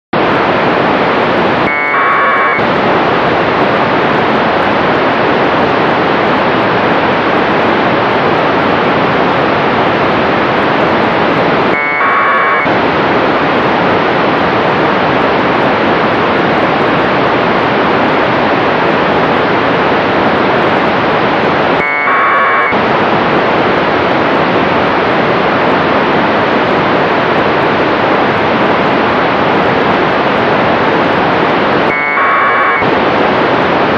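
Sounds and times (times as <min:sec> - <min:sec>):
radio static hiss: 0:00.2 - 0:24.6, 0:25.2 - 0:33.9
warbling data burst: 0:01.6 - 0:02.6, 0:11.7 - 0:12.7, 0:21.8 - 0:22.8, 0:31.8 - 0:32.9.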